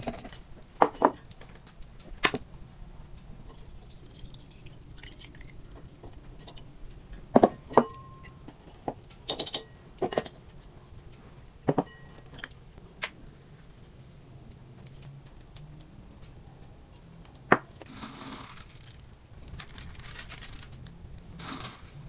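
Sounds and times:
dishes clinking and knocking: 0.0 - 1.2, 7.3 - 10.4, 11.7 - 12.5.

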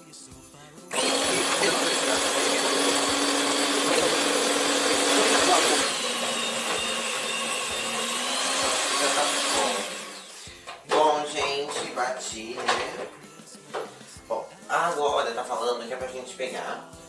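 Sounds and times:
stand mixer running: 0.9 - 10.4.

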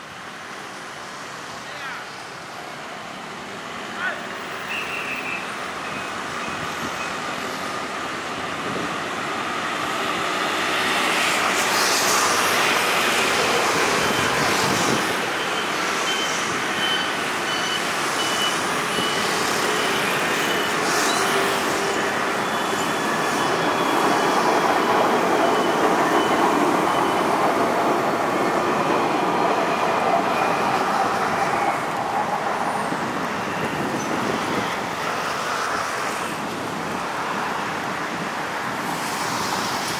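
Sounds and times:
steady road traffic: 0.0 - 39.9
tram rolling past: 5.5 - 39.9.

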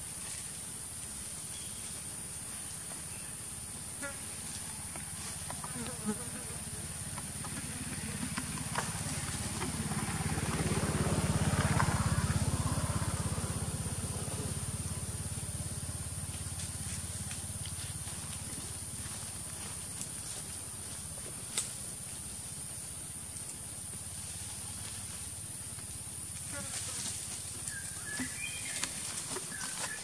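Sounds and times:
low motor rumble: 6.6 - 26.4.

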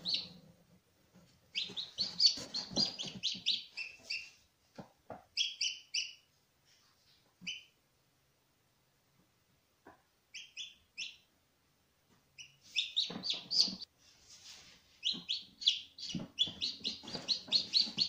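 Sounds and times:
chick peeping: 0.0 - 0.5, 1.4 - 6.3, 7.4 - 7.8, 9.9 - 11.3, 12.4 - 13.9, 14.9 - 18.0.

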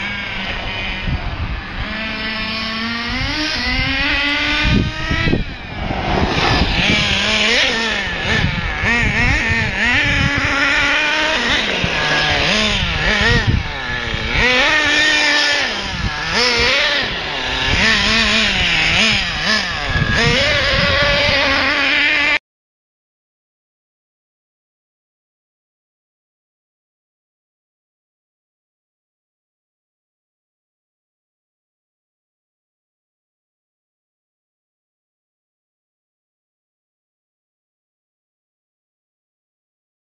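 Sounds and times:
small engine revving: 0.0 - 22.4.

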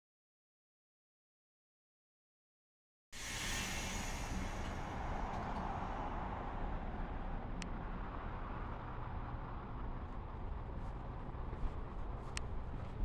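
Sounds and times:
train rolling past: 3.2 - 8.9
low rumble: 3.2 - 13.0.

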